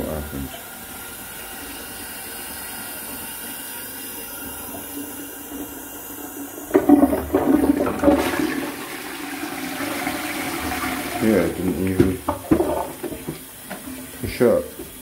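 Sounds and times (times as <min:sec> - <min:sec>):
toilet cistern refilling hiss: 0:00.0 - 0:15.0
toilet flush water rush: 0:00.0 - 0:15.0.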